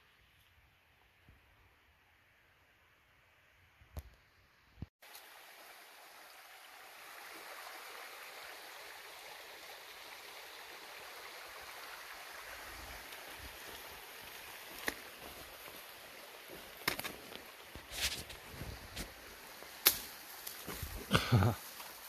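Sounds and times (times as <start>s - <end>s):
creek water running: 5.0s - 22.0s
sharp snap: 19.8s - 20.1s.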